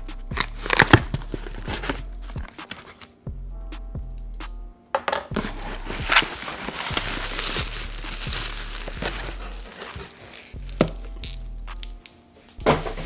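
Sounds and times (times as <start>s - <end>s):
quiet background music: 0.0s - 13.0s
bubble wrap crinkling: 0.3s - 3.1s, 5.4s - 12.1s.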